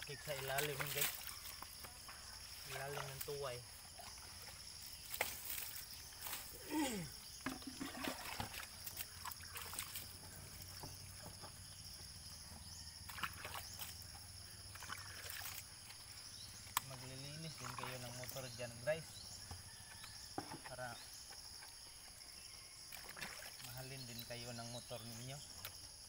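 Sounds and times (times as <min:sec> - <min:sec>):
water splashing and sloshing: 0:00.0 - 0:11.8, 0:13.0 - 0:18.8, 0:20.4 - 0:24.3
water trickling: 0:00.0 - 0:19.0
insect drone: 0:00.0 - 0:26.0.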